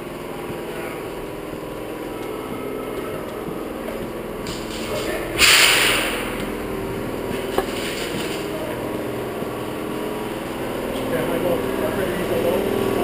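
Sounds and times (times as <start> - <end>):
steady droning hum: 0.0 - 13.0
burst of hissing: 5.4 - 6.4.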